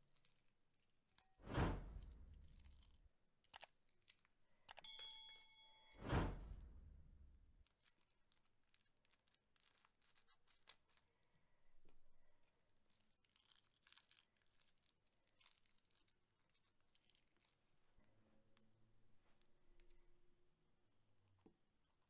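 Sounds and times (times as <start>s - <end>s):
rustle of plastic piping bags: 0.0s - 1.2s, 7.6s - 19.5s
faint crackling of slime: 0.0s - 1.4s, 2.0s - 4.8s, 7.6s - 20.2s.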